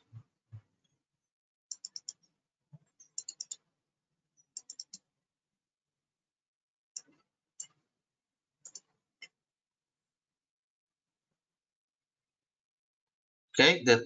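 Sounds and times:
faint keyboard typing: 1.7s - 2.2s, 3.0s - 3.6s, 4.5s - 5.0s, 8.6s - 8.9s.

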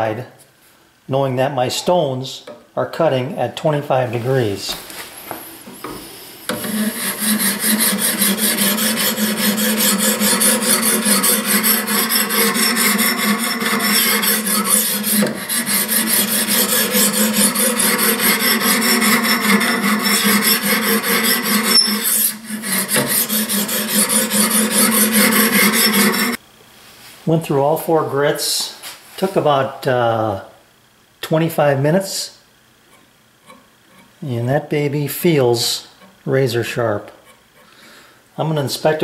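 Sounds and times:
sharpening stone scraping knife: 6.6s - 26.4s.

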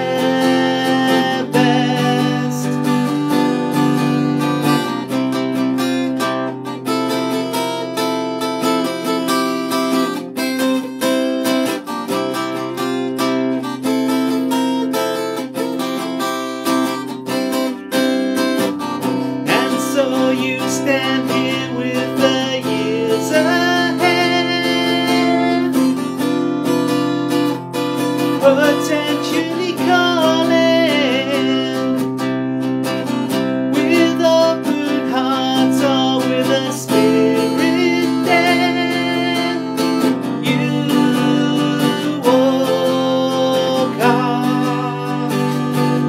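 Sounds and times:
man singing: 0.0s - 4.1s, 19.1s - 26.1s, 28.0s - 46.0s
acoustic guitar strumming: 0.0s - 46.0s.

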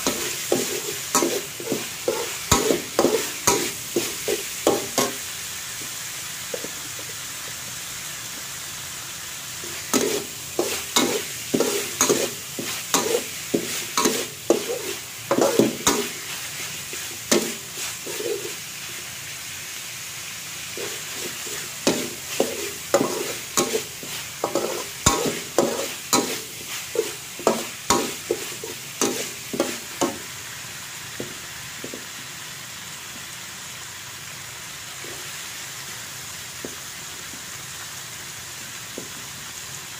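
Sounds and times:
metal spatula scraping wok: 0.0s - 5.3s, 9.6s - 18.9s, 20.7s - 30.3s
meat sizzling in wok: 0.0s - 39.9s.

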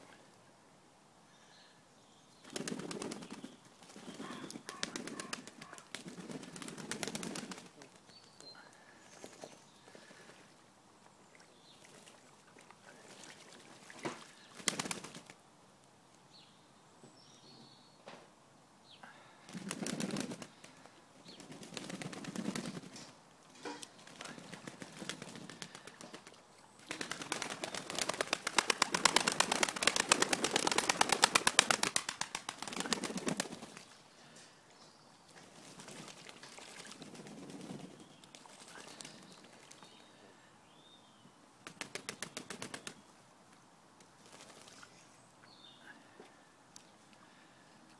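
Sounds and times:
pigeons flapping wings: 2.5s - 8.1s, 14.6s - 15.4s, 19.5s - 23.1s, 24.0s - 33.9s, 35.5s - 39.8s, 41.6s - 43.0s, 44.2s - 44.9s.

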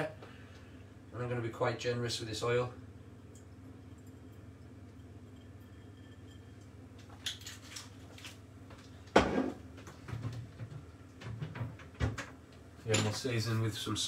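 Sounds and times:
glass bottle knocking on worktop: 9.2s - 9.6s.

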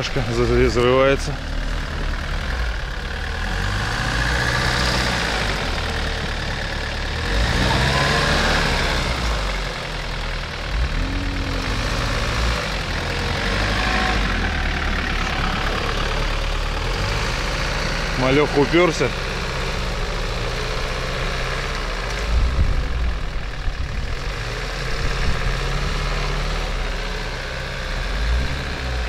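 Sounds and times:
car engine straining: 0.0s - 29.0s.

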